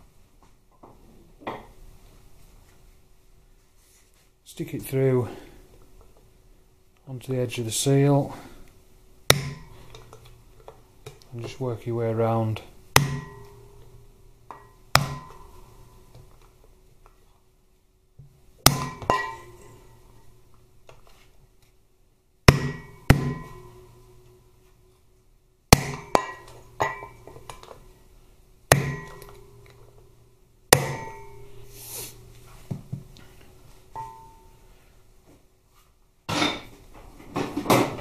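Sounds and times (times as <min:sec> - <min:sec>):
hammer striking metal drift: 0:09.3 - 0:10.1, 0:13.0 - 0:16.1, 0:18.7 - 0:20.3, 0:22.5 - 0:24.4, 0:25.7 - 0:27.7, 0:28.7 - 0:30.0, 0:30.7 - 0:32.6, 0:34.0 - 0:34.6.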